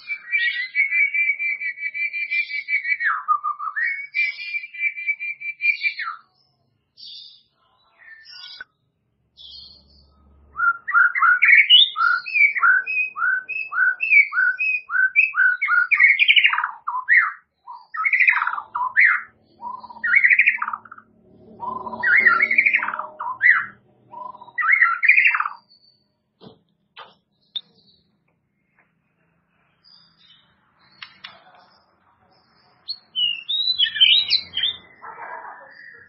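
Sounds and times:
bird singing whistled notes: 0.0 - 6.3, 9.4 - 26.2, 32.8 - 35.0.

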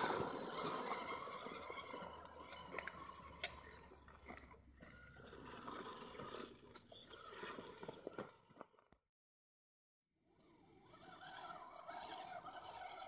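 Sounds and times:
toy truck tyres on gravel: 0.0 - 9.0, 10.8 - 13.0.

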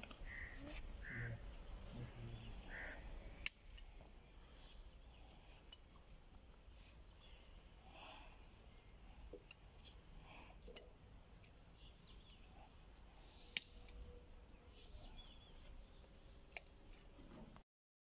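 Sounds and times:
faint bird chirps: 0.2 - 3.5, 11.6 - 16.2.

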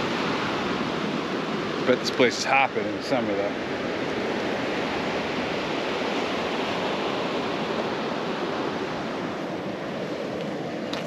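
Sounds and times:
ocean surf breaking on beach: 0.0 - 11.0.

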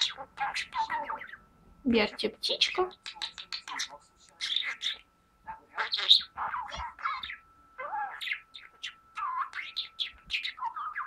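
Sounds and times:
budgerigar warbling: 0.0 - 1.4, 2.4 - 11.0.

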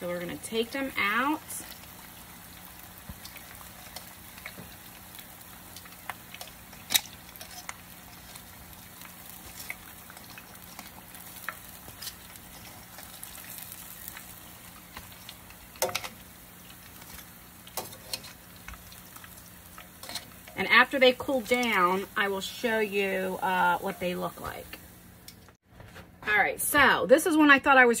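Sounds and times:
chicken deep-frying in oil: 0.0 - 25.2
metal tongs clacking on pot: 15.8 - 16.2, 19.8 - 20.6.

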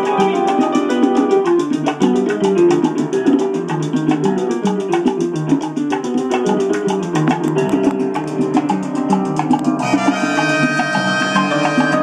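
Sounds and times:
salsa music from a record: 0.0 - 12.0.

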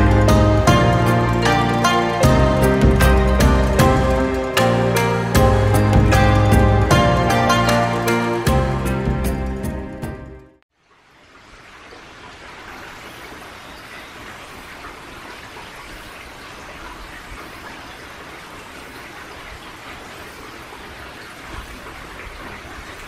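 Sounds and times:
outdoor ambient hiss: 10.7 - 23.0.

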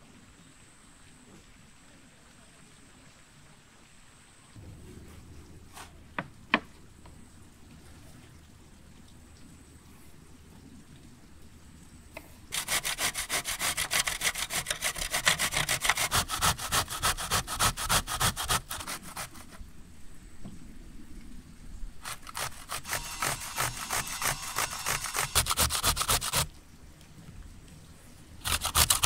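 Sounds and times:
zucchini grated on box grater: 12.5 - 19.6, 22.0 - 26.5, 28.4 - 29.0.

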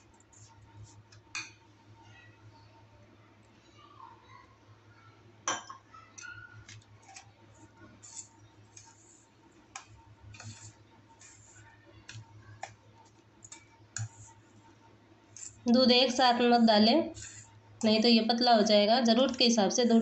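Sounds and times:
metal spoon scraping steel bowl: 17.1 - 17.6.

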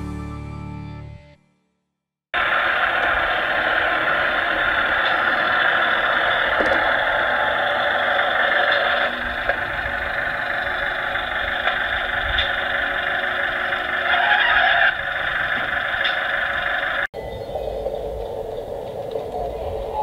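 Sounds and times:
model train motor whirring on rails: 2.4 - 17.1.

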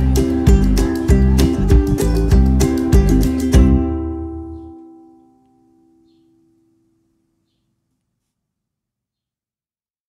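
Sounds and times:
music chord ringing out: 0.0 - 6.6.

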